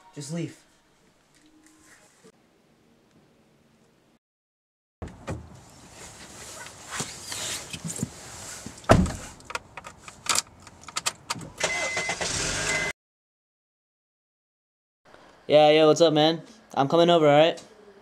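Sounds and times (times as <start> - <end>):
rustling and clunks: 5.0 - 11.6
car door thud: 8.9 - 9.3
car engine starting: 11.5 - 12.9.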